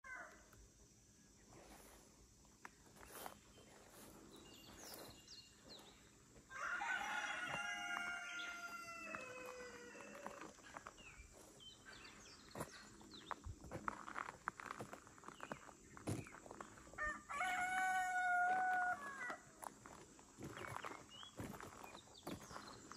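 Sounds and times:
small birds chirping: 1.2 - 6.4, 7.6 - 17.0, 19.2 - 22.9
rooster crowing: 6.5 - 10.6, 17.0 - 19.6.

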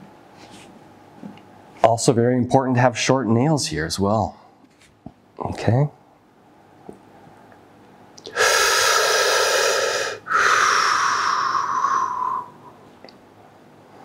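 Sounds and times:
person breathing deeply: 8.3 - 12.8.

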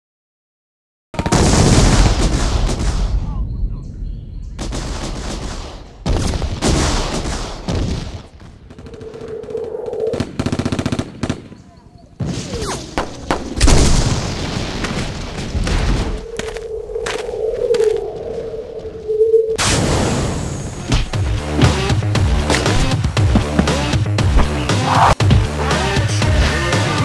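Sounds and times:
booms and sharp hits: 1.2 - 9.5, 12.2 - 17.3, 18.7 - 25.5.

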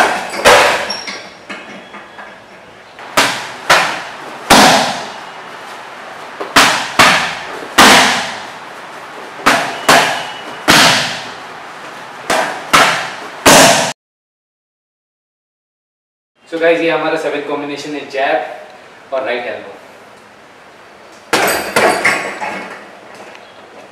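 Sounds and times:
punches and kicks smacking pads: 0.0 - 0.9, 3.1 - 5.2, 6.4 - 8.5, 9.4 - 11.4, 12.3 - 13.9.

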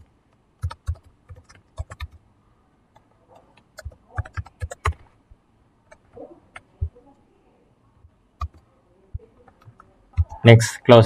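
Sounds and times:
keyboard keystrokes: 0.6 - 2.2, 3.5 - 5.0, 8.4 - 8.6.

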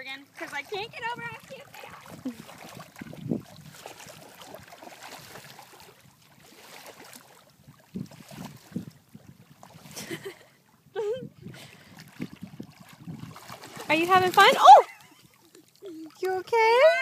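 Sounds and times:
wind: 0.0 - 17.0
children splashing in water: 0.3 - 7.3, 11.7 - 17.0.

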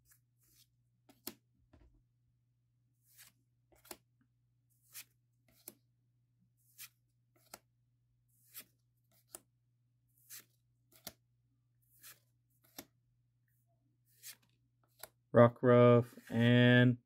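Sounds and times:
cards sliding swishes: 3.0 - 4.1, 4.8 - 5.8, 6.6 - 7.7, 8.3 - 9.5, 10.1 - 11.2, 11.8 - 12.9, 14.1 - 15.2.

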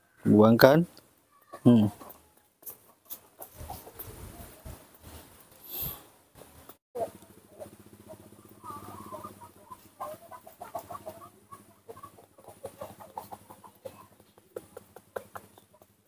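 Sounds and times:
short clucking calls: 7.0 - 16.0.

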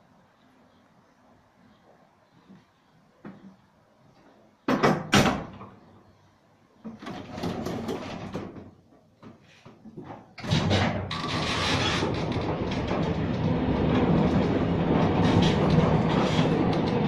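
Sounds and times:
rattling clatter: 10.4 - 17.0
tram doors banging shut: 10.4 - 17.0
tram wheels rumbling on track: 10.4 - 17.0.

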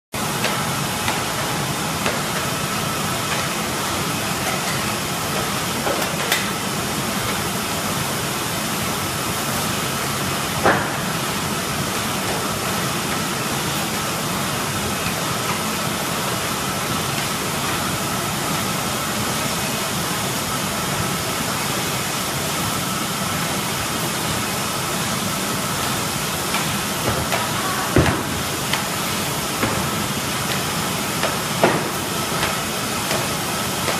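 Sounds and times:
sharp knocks: 27.0 - 28.8.

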